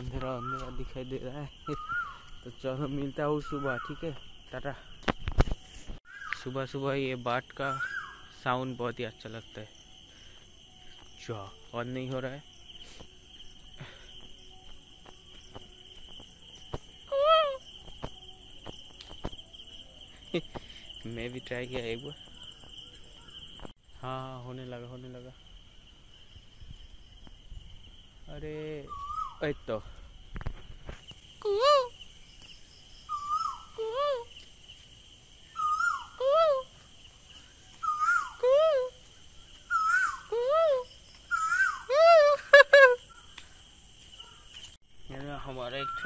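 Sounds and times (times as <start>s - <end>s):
bird calling: 0.0s - 0.9s, 1.6s - 2.4s, 3.2s - 4.1s, 7.6s - 8.4s, 28.8s - 29.6s, 33.0s - 34.4s, 35.4s - 36.8s, 37.7s - 43.4s, 45.6s - 46.0s
crickets trilling: 0.0s - 46.0s
person imitating bird call: 35.6s - 36.7s, 37.8s - 39.0s, 39.7s - 43.2s.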